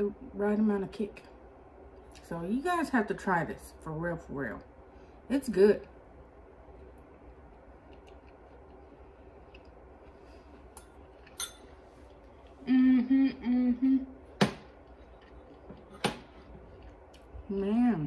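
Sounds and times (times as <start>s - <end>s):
metal fork clinking on bowl: 10.8s - 11.7s
woman humming with full mouth: 12.6s - 14.1s.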